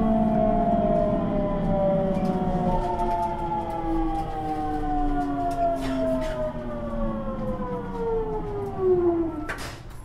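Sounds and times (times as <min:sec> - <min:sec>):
train motors whining: 0:00.0 - 0:10.0.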